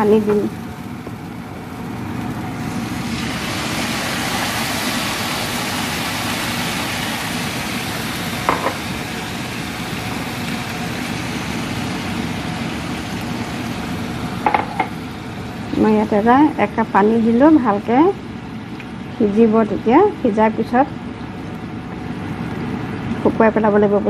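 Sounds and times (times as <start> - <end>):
sizzling in frying pan: 0.0 - 23.9
water pouring into frying pan: 2.6 - 12.1.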